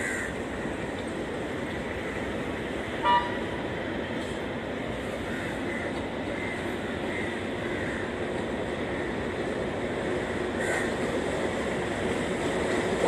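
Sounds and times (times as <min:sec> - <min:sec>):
diesel locomotive rumble: 0:00.0 - 0:13.0
loud high horn blast: 0:03.0 - 0:03.4.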